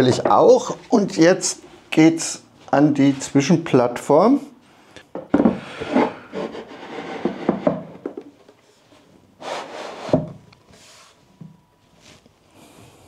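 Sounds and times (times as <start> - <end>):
wood scraping against wood: 5.6 - 8.2.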